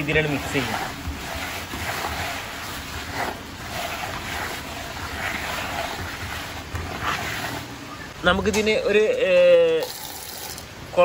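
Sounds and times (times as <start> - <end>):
feed pellets stirred by hand: 0.0 - 7.8.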